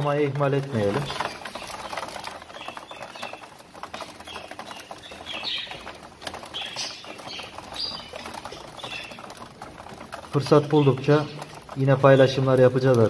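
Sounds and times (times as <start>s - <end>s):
pecking and scratching clicks: 0.0s - 13.0s
wings flapping: 0.0s - 13.0s
budgerigars chirping: 0.8s - 9.4s.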